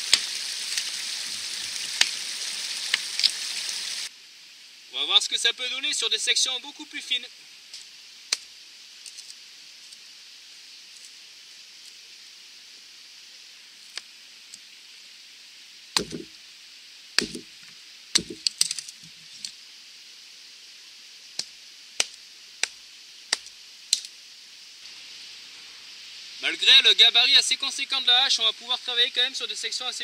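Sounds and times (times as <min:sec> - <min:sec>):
axe chopping wood: 0:16.0 - 0:16.3, 0:17.2 - 0:17.5, 0:18.2 - 0:18.7
wood cracking: 0:16.0 - 0:16.3, 0:17.2 - 0:17.5, 0:18.2 - 0:19.5.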